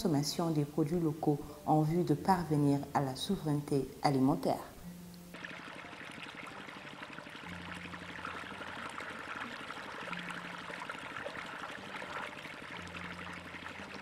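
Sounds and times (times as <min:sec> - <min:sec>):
water gushing into pool: 0:05.3 - 0:14.0.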